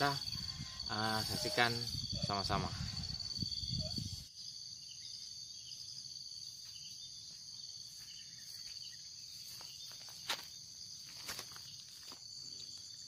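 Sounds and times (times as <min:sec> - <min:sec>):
insects chirping: 0:00.0 - 0:13.0
footsteps through grass: 0:05.8 - 0:12.4.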